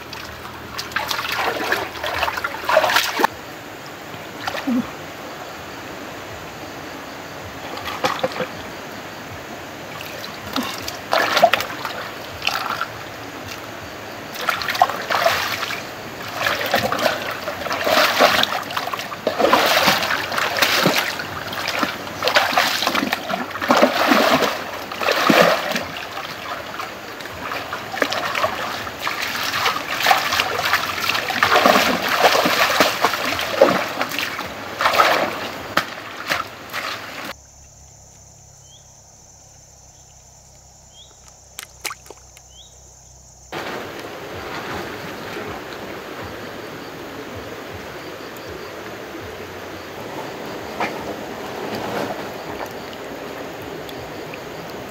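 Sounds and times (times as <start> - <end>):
hands splashing in shallow water: 0.0 - 3.3, 10.0 - 12.9, 14.3 - 37.3, 41.5 - 42.4.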